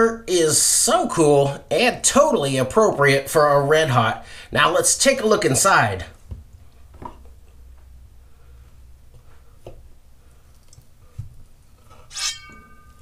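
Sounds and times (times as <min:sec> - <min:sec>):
low steady hum: 0:06.0 - 0:13.0
knife scraping with short ring: 0:12.1 - 0:13.0.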